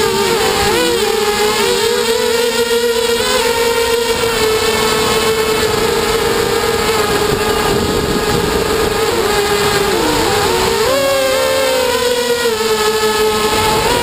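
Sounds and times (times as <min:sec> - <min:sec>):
drone motors whining: 0:00.0 - 0:14.0
rush of wind: 0:04.1 - 0:11.2, 0:13.2 - 0:14.0.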